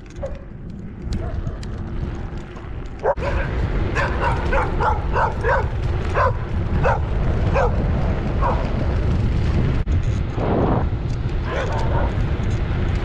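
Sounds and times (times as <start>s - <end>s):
bicycle tyres on gravel: 0.0s - 13.0s
wind rumble: 0.0s - 13.0s
dog barking: 0.2s - 0.5s, 3.0s - 8.7s, 11.4s - 12.2s.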